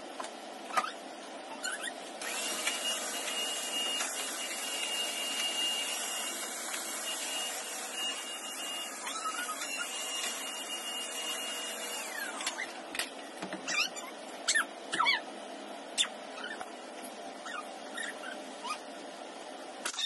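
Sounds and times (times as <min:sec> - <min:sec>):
vacuum cleaner motor whine: 0:02.2 - 0:12.7.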